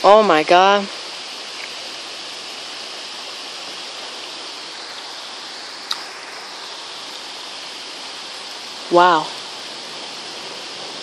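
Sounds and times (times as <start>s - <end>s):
heavy rain on trees: 0.0s - 11.0s.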